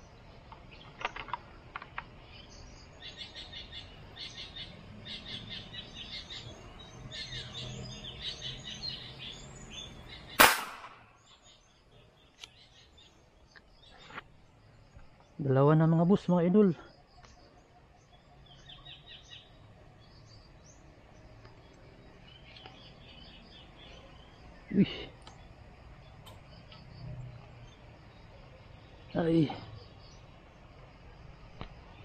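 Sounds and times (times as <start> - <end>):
birds chirping: 0.0 - 32.0
loud sharp gunshot: 10.4 - 11.1.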